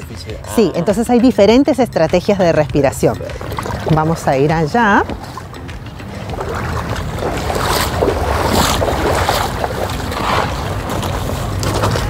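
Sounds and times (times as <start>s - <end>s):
river water flowing: 0.0s - 12.0s
wind buffeting microphone: 3.3s - 12.0s.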